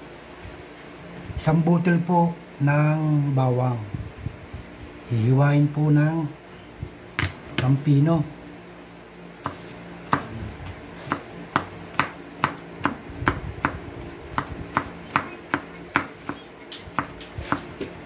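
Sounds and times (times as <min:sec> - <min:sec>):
knife chopping on wooden board: 0:09.4 - 0:10.3, 0:11.0 - 0:17.9.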